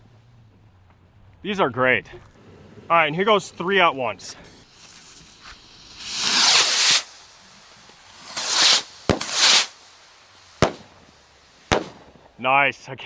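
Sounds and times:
rockets bursting with bangs: 4.3 - 12.5
rockets launching with whoosh: 4.4 - 12.4.

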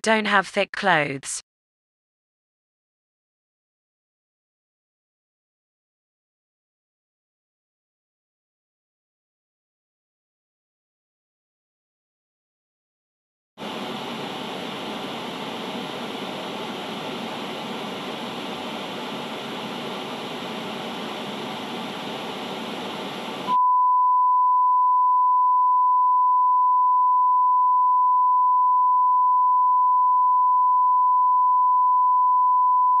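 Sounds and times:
tv static hiss: 13.6 - 23.6.

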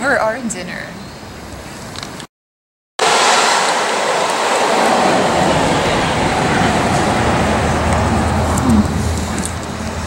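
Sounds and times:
large vehicle passing: 3.0 - 10.0
low hum: 3.0 - 10.0.

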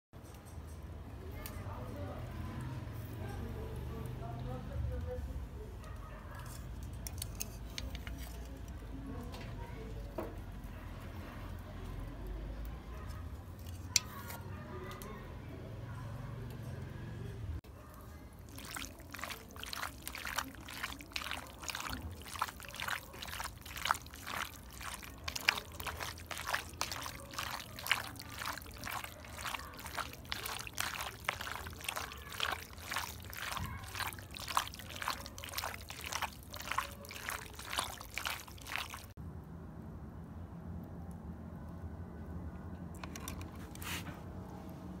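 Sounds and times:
liver squelching in marinade: 18.2 - 39.1.

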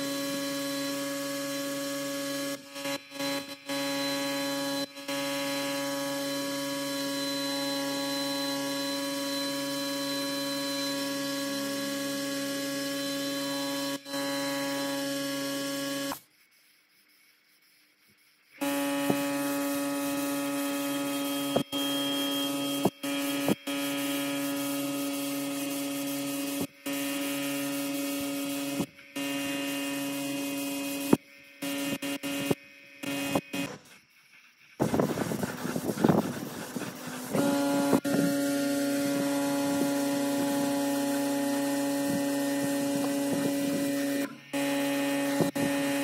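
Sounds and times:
paint spray gun hissing: 19.0 - 46.0.

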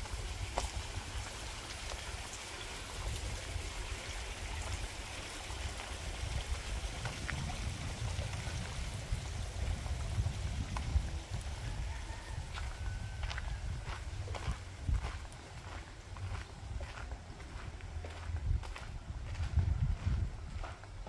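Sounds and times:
water rushing in stream: 0.0 - 12.8.

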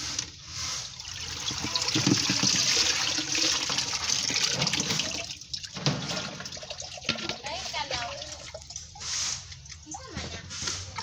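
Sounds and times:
water streaming off net: 0.0 - 9.6
water splashing and pouring: 0.0 - 11.0.

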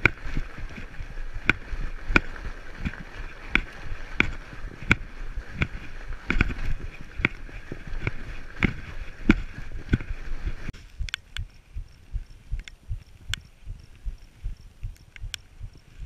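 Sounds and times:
bike knocking: 0.0 - 11.2.

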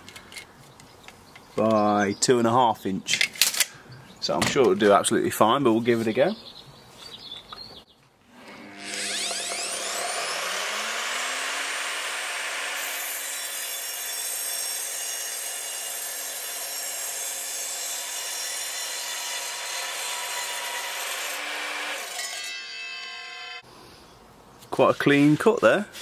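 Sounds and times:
saw motor spinning up: 8.3 - 15.2.

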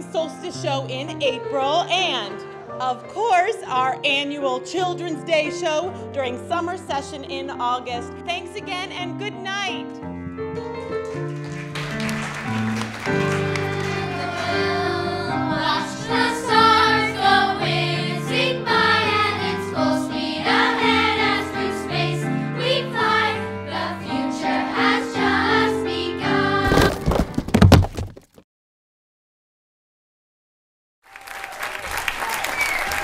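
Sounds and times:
piano accompaniment: 0.0 - 26.9
applause: 11.0 - 14.8, 31.1 - 33.0
children's choir singing: 12.9 - 26.7.

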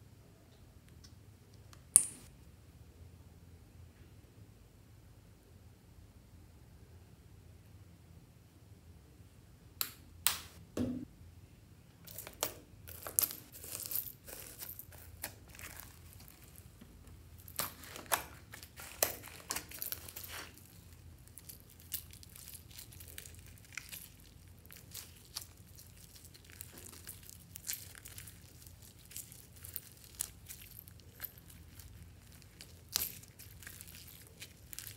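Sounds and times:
sticky slime crackles and clicks: 17.5 - 34.9.

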